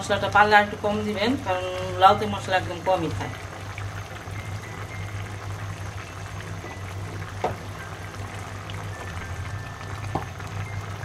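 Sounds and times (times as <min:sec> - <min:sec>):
curry simmering and bubbling: 0:00.0 - 0:11.0
low hum: 0:02.7 - 0:11.0.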